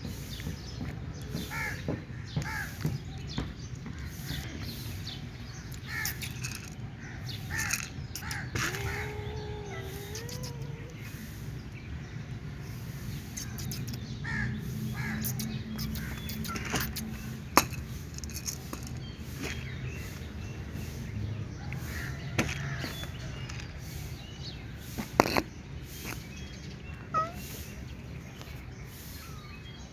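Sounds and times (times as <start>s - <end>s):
crows cawing: 7.5s - 10.8s, 14.2s - 15.2s.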